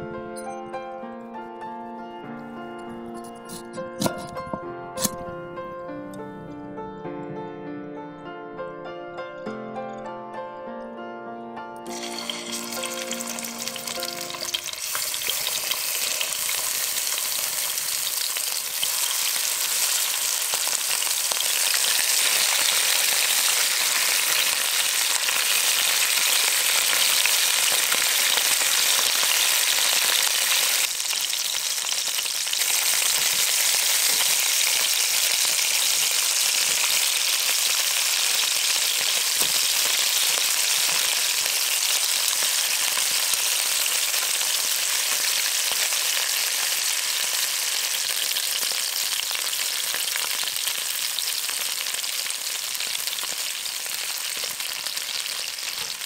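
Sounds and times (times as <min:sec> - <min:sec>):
chicken sizzling in hot oil: 0:11.9 - 0:56.0.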